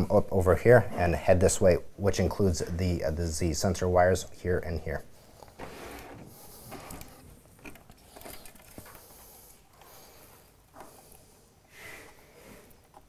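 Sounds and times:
wires rustling and clicking: 5.2s - 11.3s.

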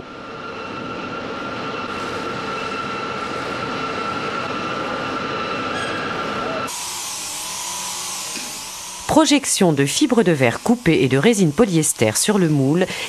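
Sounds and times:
constant machine tones: 5.7s - 13.0s
workshop machinery noise: 5.7s - 13.0s.

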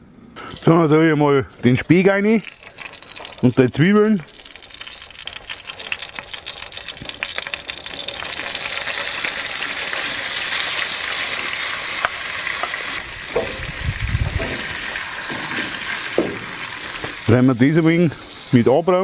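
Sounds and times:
bacon sizzling in a pan: 1.7s - 19.0s
spatula knocking and scraping pan: 12.6s - 13.7s, 14.3s - 17.2s.

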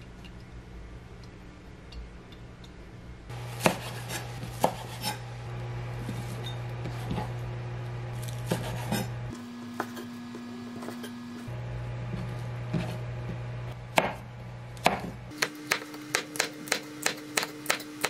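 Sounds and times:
knife chopping on wooden board: 3.6s - 5.2s, 8.2s - 9.2s, 12.7s - 18.0s.

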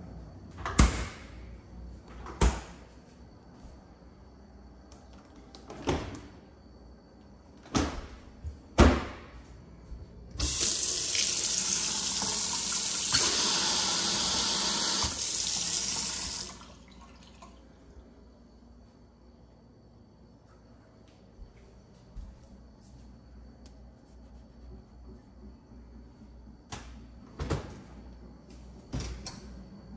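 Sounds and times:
faucet running into steel sink: 10.4s - 17.6s.

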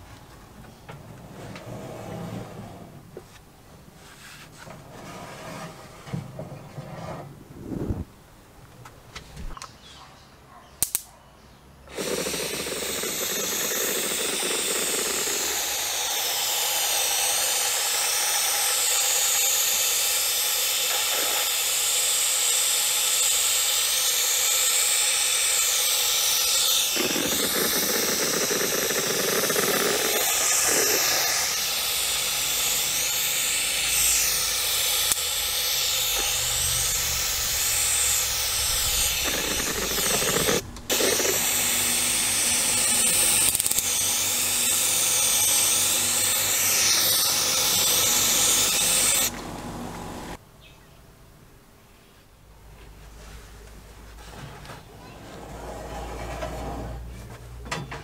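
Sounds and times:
paint spray gun hissing: 11.9s - 49.3s.

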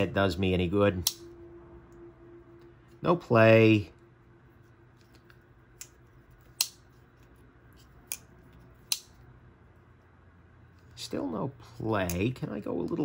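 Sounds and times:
folding knife metallic clicks: 1.0s - 1.3s, 5.8s - 6.8s, 8.0s - 9.2s.

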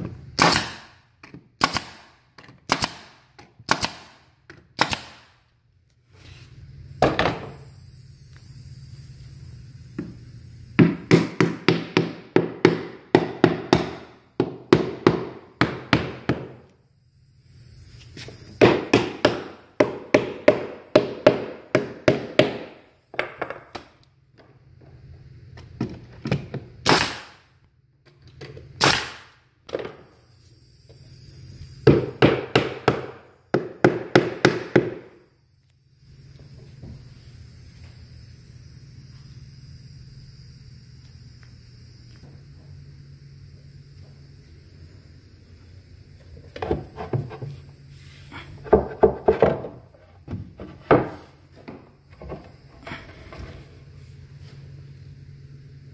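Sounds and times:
nail gun firing into wood: 0.4s - 5.4s, 26.8s - 27.5s, 28.8s - 29.4s.

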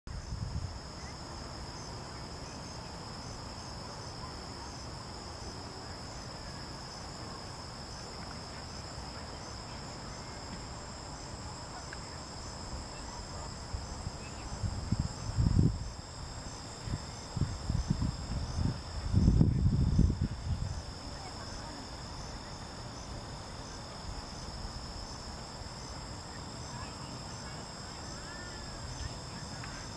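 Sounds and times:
wind rumble on microphone: 0.1s - 1.1s, 12.6s - 22.6s.

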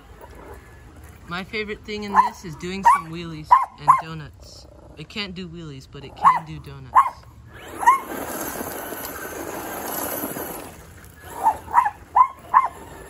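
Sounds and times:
dog barking: 2.1s - 4.2s, 6.2s - 7.2s, 11.4s - 12.8s.

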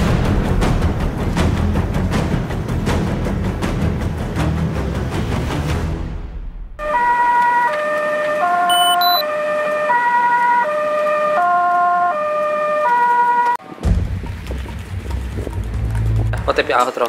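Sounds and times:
ambulance siren hi-lo: 6.8s - 13.6s.

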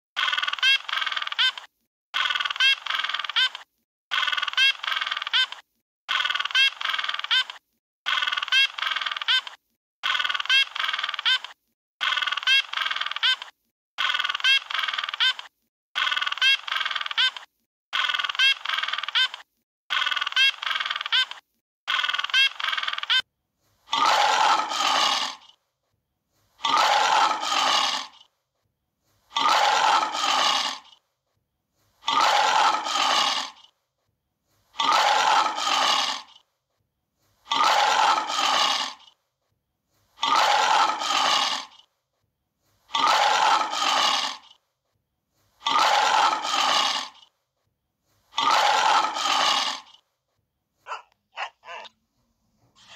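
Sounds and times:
lion roaring: 23.9s - 25.4s, 26.6s - 28.2s, 29.3s - 30.9s, 32.0s - 33.6s, 34.8s - 36.3s, 37.5s - 39.0s, 40.2s - 41.8s, 42.9s - 44.5s, 45.6s - 47.2s, 48.4s - 49.9s, 50.9s - 51.9s.

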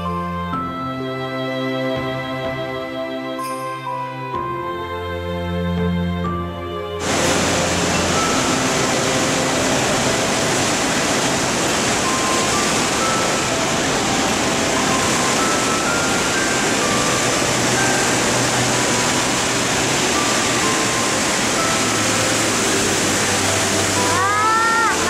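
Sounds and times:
waterfall rushing over rocks: 7.0s - 25.0s.

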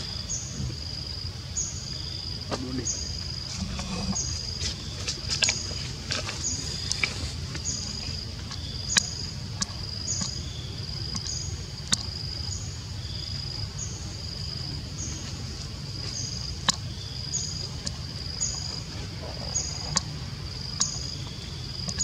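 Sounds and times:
insect buzzing call: 0.0s - 15.3s, 16.1s - 22.0s
low rumble: 3.4s - 5.1s.

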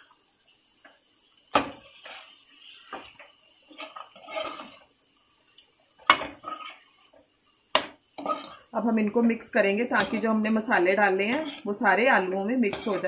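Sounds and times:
spoon scraping metal pot: 1.6s - 4.9s, 6.1s - 6.9s, 8.2s - 8.7s, 10.0s - 10.4s, 11.0s - 13.0s.

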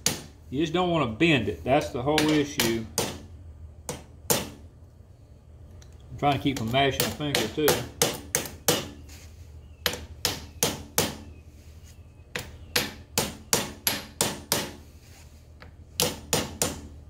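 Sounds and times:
hammer tapping: 1.8s - 3.2s, 6.3s - 9.0s, 9.8s - 11.2s, 12.3s - 14.8s, 15.6s - 16.9s.

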